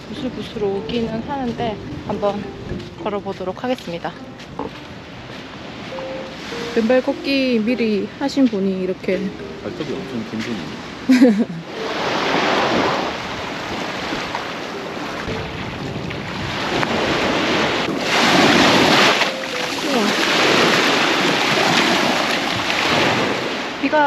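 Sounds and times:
wind buffeting microphone: 0.0 - 24.0
small waves washing on sand: 11.7 - 24.0.

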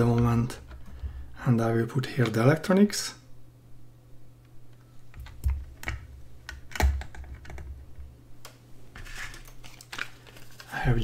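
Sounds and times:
plastic parts clicking and knocking: 5.1 - 7.8.

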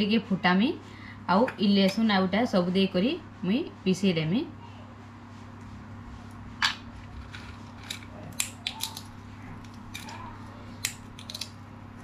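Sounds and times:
peanut shells cracking: 7.2 - 12.0.

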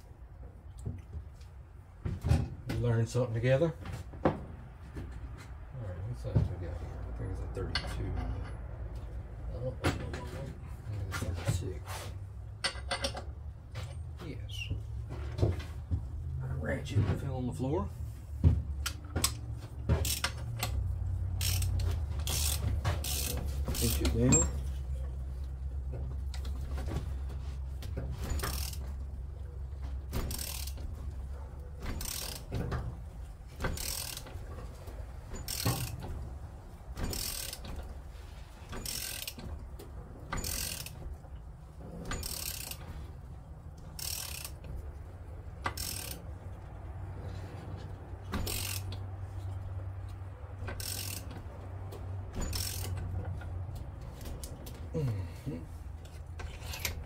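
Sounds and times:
ratchet wrench clicking: 20.0 - 24.6, 28.2 - 29.0, 30.2 - 30.8, 31.8 - 32.5, 33.6 - 34.4, 35.4 - 36.0, 37.0 - 37.8, 38.8 - 39.4, 40.3 - 41.0, 42.1 - 42.8, 43.8 - 44.7, 45.6 - 46.3, 48.4 - 49.0, 50.7 - 51.4, 52.4 - 53.1.

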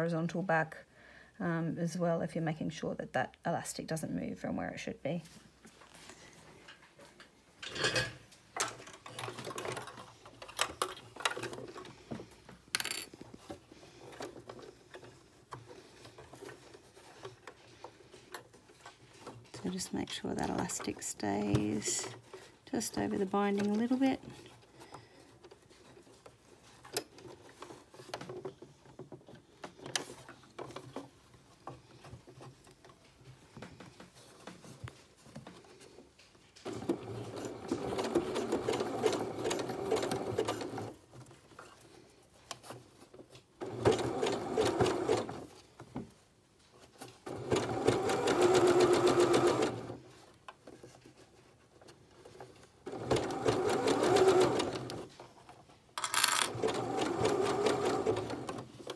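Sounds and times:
sewing machine running: 47.3 - 50.0, 52.9 - 55.1, 56.1 - 58.6.

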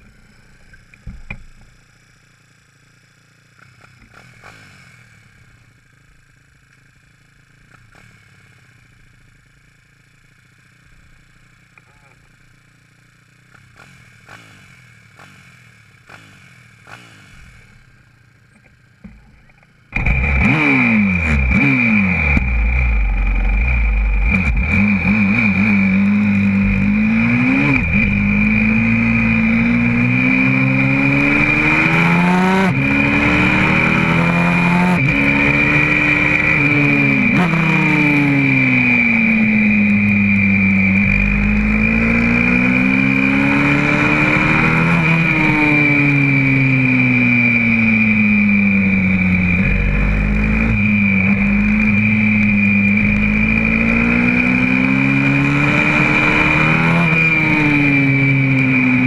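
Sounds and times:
motorbike engine revving: 3.5 - 59.0
steady high whine: 13.6 - 59.0.

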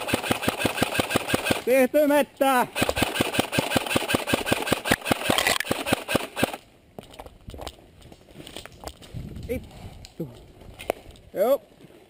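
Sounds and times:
airsoft gun rapid firing: 0.0 - 1.8, 2.6 - 6.6.

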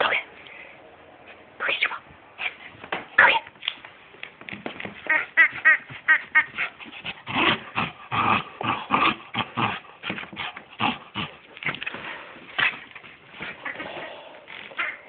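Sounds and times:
knocks and scuffles: 2.6 - 7.0, 11.6 - 14.1.

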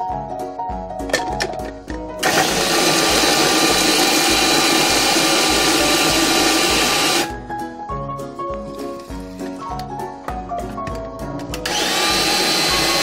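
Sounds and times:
background music with steady beat: 0.0 - 13.0
food processor chopping: 2.2 - 7.3, 11.6 - 13.0.

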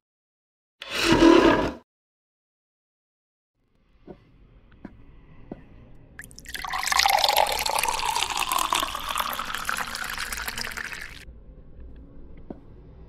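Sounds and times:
water pouring into glass: 6.2 - 11.2.

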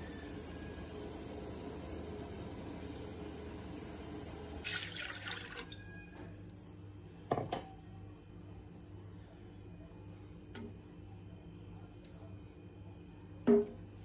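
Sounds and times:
water splashing into a pot: 4.6 - 6.7.

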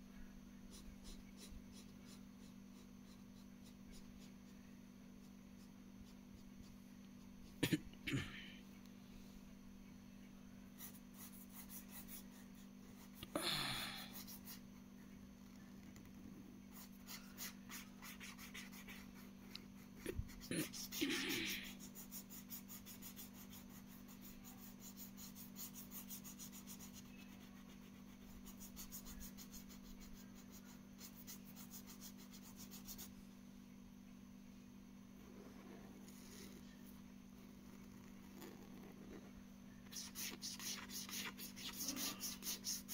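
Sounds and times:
steady low hum: 0.0 - 42.9
felt-tip pen scratching on paper: 0.7 - 4.6, 10.8 - 13.2, 15.8 - 33.1, 35.4 - 36.7, 37.6 - 42.9.

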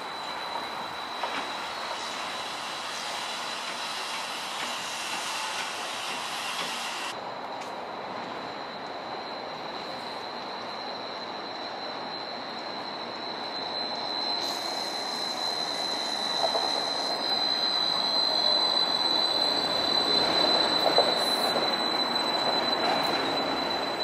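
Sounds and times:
streetcar wheels rumbling on rails: 0.0 - 24.0
high-pitched squeal: 9.9 - 24.0.

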